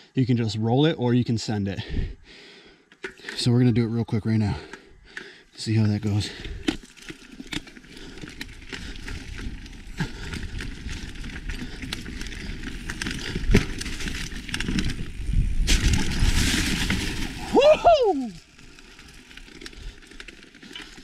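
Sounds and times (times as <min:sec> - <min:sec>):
bike tyres crunching over leaves: 0:06.1 - 0:21.0
bike knocks and rattles: 0:06.6 - 0:17.4.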